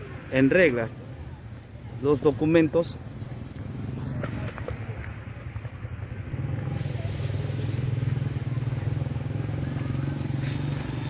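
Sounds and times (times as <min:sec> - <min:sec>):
small motorcycle engine idling: 0:03.0 - 0:11.0.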